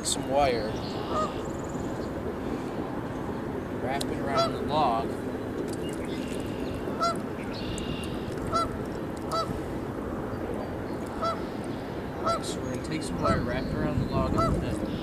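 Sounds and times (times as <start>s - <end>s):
geese honking: 1.0s - 1.4s, 4.2s - 4.6s, 6.9s - 7.2s, 7.9s - 9.6s, 11.2s - 11.6s, 12.2s - 13.6s, 14.3s - 15.0s.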